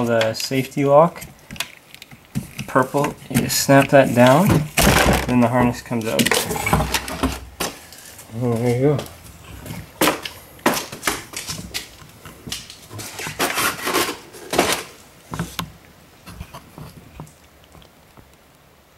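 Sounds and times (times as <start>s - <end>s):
handling clicks and knocks: 0.0s - 7.8s.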